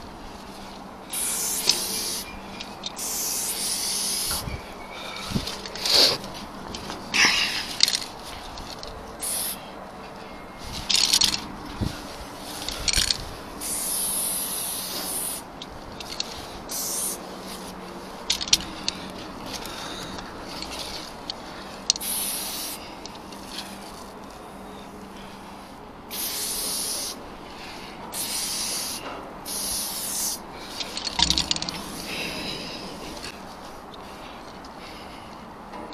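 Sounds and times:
spray paint can hissing: 1.1 - 4.4, 9.2 - 9.7, 12.5 - 17.7, 21.9 - 22.8, 26.1 - 27.2, 28.1 - 32.1
sharp clicks: 30.8 - 31.9.

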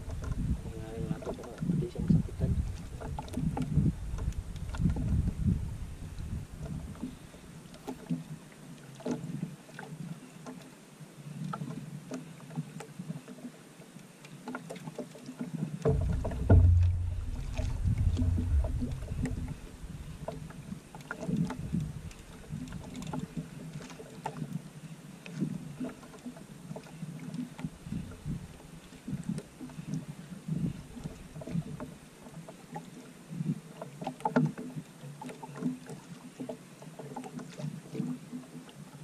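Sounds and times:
water lapping against boat hull: 0.0 - 39.0
light clicks and knocks: 1.0 - 1.8, 14.4 - 24.4
low rumble: 15.9 - 20.5.

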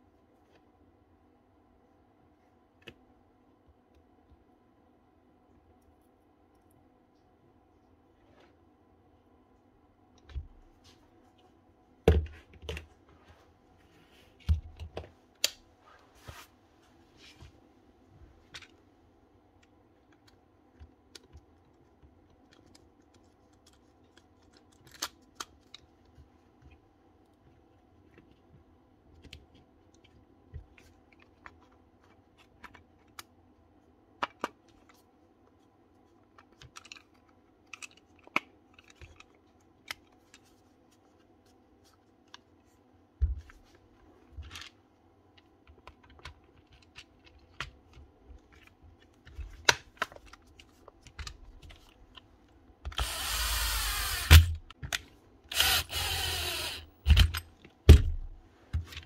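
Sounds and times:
cordless drill running: 53.0 - 54.6, 55.5 - 57.0.

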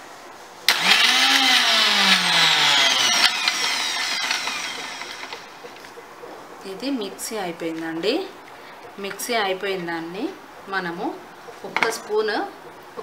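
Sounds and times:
electric mixer grinder whine: 0.7 - 5.6.

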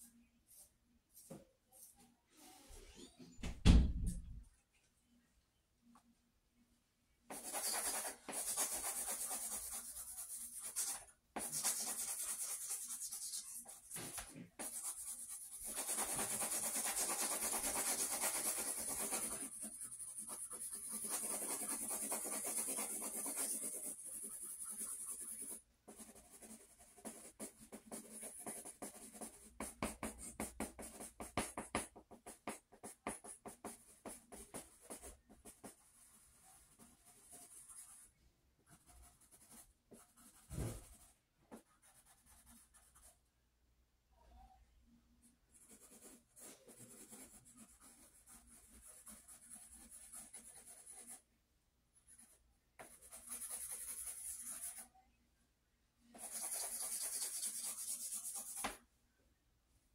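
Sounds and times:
pencil scratching on paper: 7.3 - 38.1, 38.7 - 43.2, 45.5 - 51.2, 52.0 - 54.9, 56.1 - 58.8.

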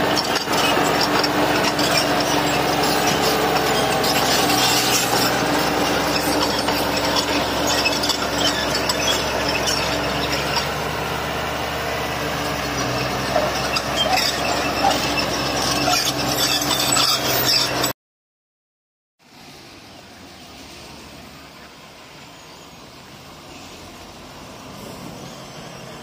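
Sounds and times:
steel tracks clattering: 0.0 - 11.0
bulldozer diesel engine: 0.0 - 18.0, 19.3 - 26.0.

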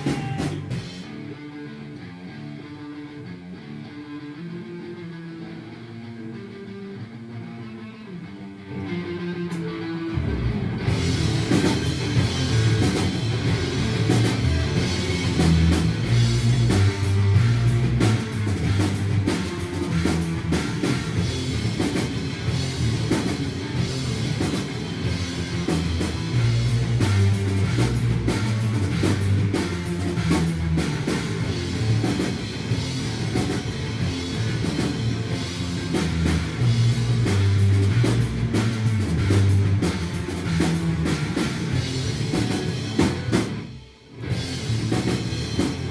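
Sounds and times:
drum kit: 0.0 - 3.6, 8.2 - 45.9
electric guitar: 0.0 - 45.9
heavy low notes: 0.0 - 45.9.

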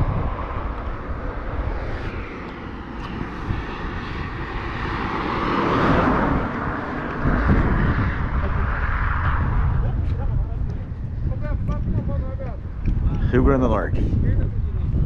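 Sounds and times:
car passing on highway: 0.0 - 11.4.

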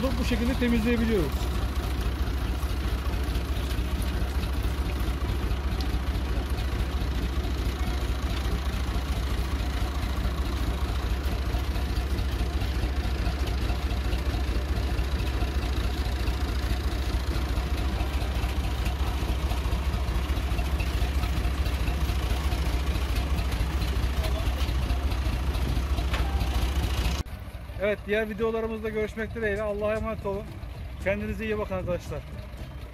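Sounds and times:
tractor engine idling: 0.0 - 32.9.

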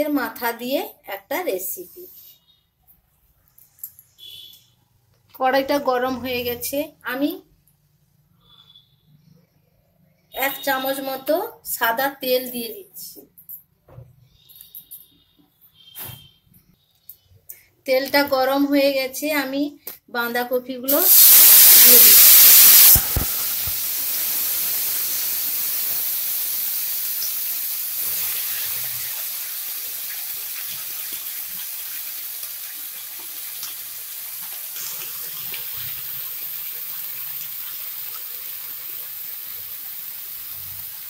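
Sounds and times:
vegetables sizzling in hot oil: 20.9 - 41.0.

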